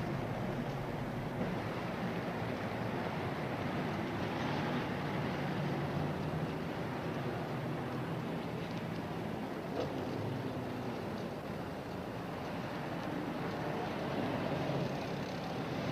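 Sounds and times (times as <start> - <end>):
car engine and road noise: 0.0 - 15.9.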